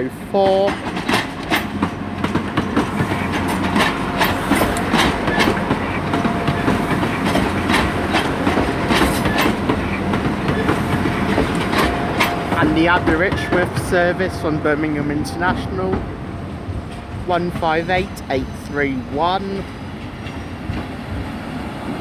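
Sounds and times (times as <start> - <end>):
train rumbling: 0.0 - 22.0
wheels clicking over rail joints: 0.2 - 14.4.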